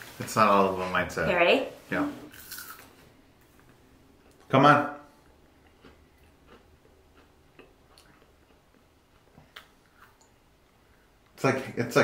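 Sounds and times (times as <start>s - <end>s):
faint crunches of chewing: 2.3s - 4.5s, 5.2s - 10.4s.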